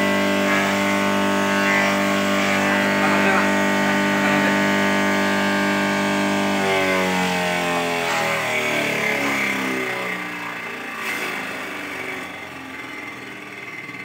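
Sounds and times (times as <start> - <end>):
motor and blade spinning down: 0.0 - 14.0.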